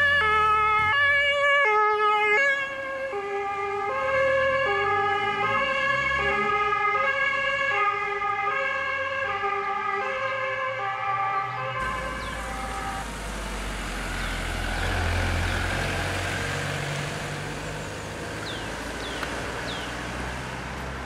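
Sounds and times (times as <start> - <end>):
two-tone ambulance siren: 0.0 - 13.8.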